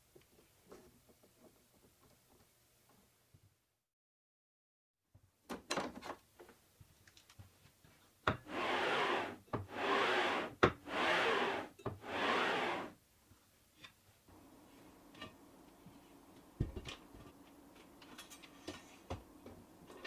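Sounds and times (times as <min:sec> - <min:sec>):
block sliding on metal rails: 0:08.4 - 0:13.0.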